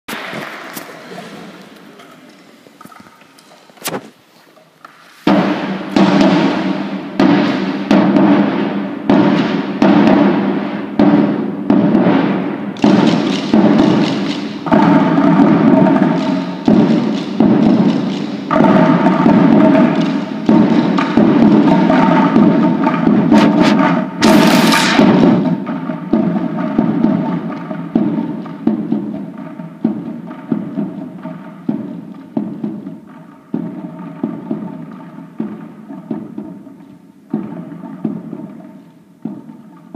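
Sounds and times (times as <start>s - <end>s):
cymbal crash: 5.3s - 28.8s
drum played with mallet: 5.3s - 39.9s.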